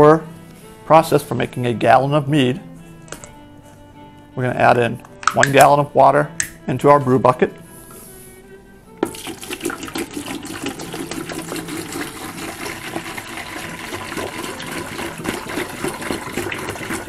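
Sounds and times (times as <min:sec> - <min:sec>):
water glugging into bucket: 0:09.0 - 0:17.0.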